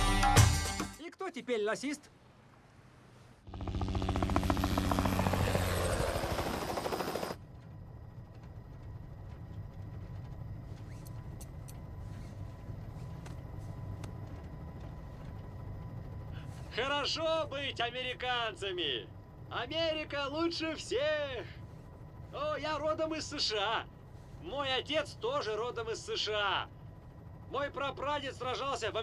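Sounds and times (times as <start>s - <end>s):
helicopter cabin drone: 2.4s - 29.0s
helicopter rotor chopping: 3.4s - 16.3s.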